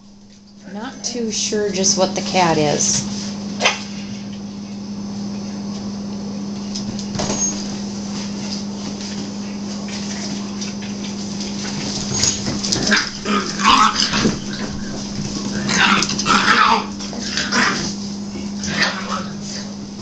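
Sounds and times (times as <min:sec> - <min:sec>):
steady low hum: 0:00.0 - 0:20.0
puppies yipping and whimpering: 0:12.1 - 0:17.9.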